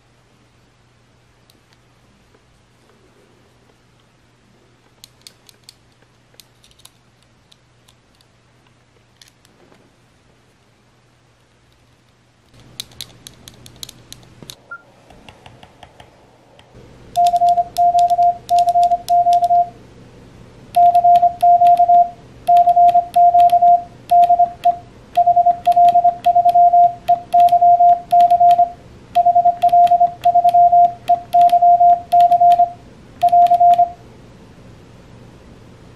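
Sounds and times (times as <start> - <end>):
morse code sidetone beeps: 17.2 - 19.7, 20.8 - 34.0.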